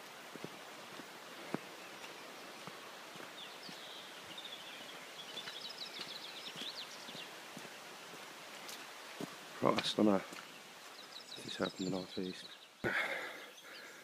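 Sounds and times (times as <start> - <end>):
footsteps on wet gravel: 0.0 - 12.2
steady outdoor hiss: 0.0 - 14.0
songbird singing trills: 1.6 - 7.4, 10.0 - 14.0.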